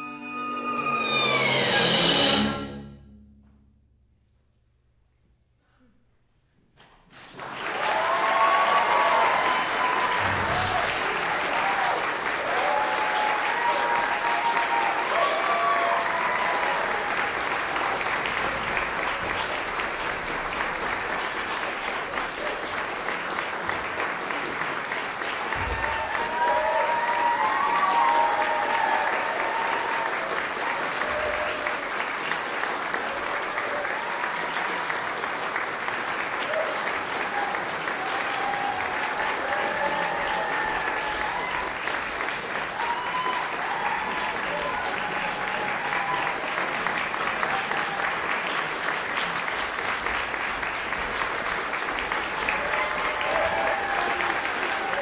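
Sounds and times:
audience applause: 7.1s - 55.0s
voices cheering: 7.5s - 18.5s, 25.2s - 32.0s, 33.0s - 35.0s, 36.3s - 48.5s, 52.3s - 55.0s.

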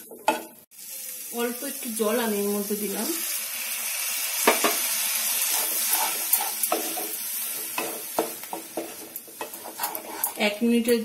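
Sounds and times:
masala sizzling in hot oil: 0.0s - 11.0s
wooden spatula scraping a pan: 4.5s - 10.7s.

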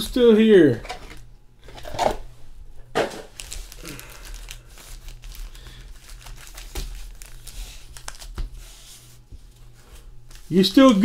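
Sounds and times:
foil packs crinkling: 3.1s - 8.6s.

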